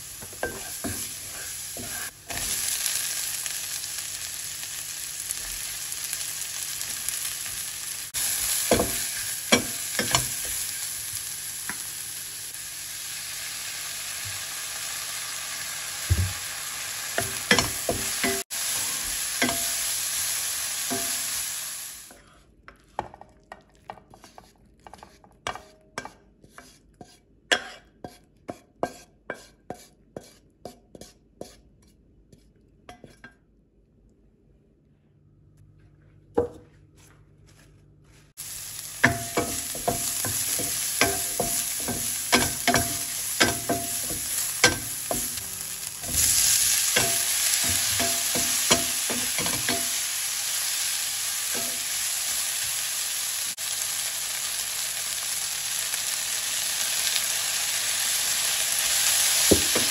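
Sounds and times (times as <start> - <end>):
food sizzling in frying pan: 0.0 - 22.1, 38.4 - 59.9
wooden spatula scraping pan: 0.3 - 2.5, 23.9 - 31.6.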